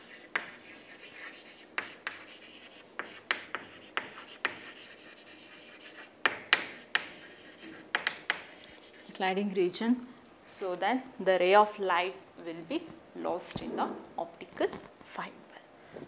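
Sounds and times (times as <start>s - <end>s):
chalk tapping on board: 0.0s - 9.1s
chalk scratching on chalkboard: 0.0s - 9.2s.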